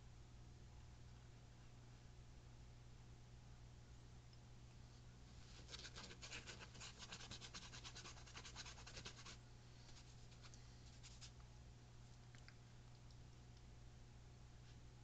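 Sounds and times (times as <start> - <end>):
paintbrush scratching: 5.5 - 9.4, 10.0 - 11.3.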